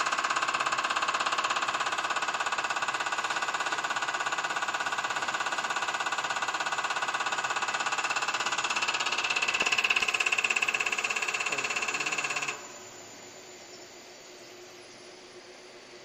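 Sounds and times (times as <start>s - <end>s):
steady running machine noise: 0.0s - 16.0s
injector clicking buzz: 2.6s - 12.7s.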